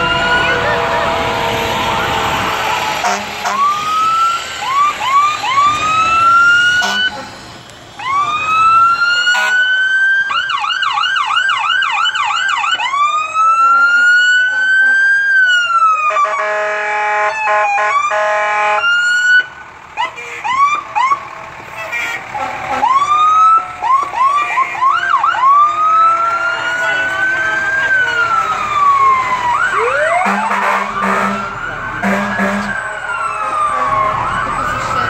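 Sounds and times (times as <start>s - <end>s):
horn blasts: 0.0s - 3.8s, 6.8s - 7.3s, 30.1s - 34.0s
fire engine sirens: 0.0s - 35.0s.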